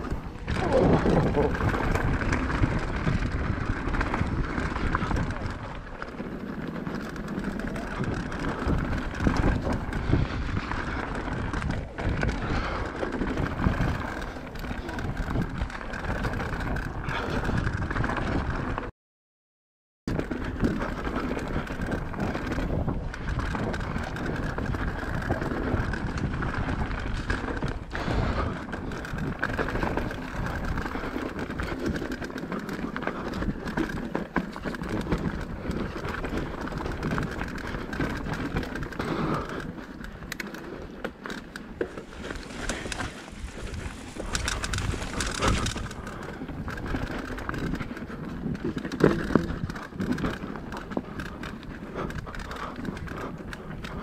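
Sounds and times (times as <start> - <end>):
bike chain and frame clattering: 0.0 - 18.4, 20.1 - 54.0
bike tyres rattling over stones: 0.0 - 18.9, 20.1 - 54.0.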